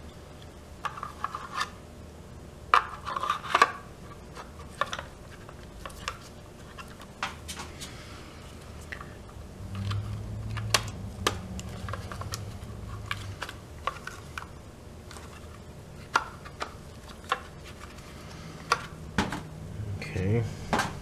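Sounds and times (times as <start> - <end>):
low hum: 7.6 - 21.0.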